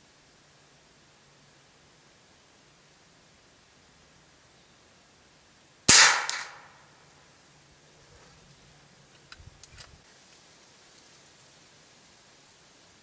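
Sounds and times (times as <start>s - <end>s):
air rifle shot: 5.9s - 6.8s.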